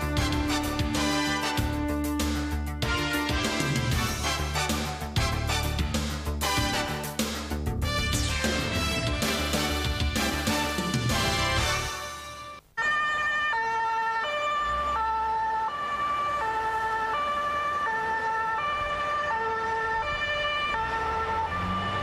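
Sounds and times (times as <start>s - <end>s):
two-tone emergency siren: 12.4s - 22.0s.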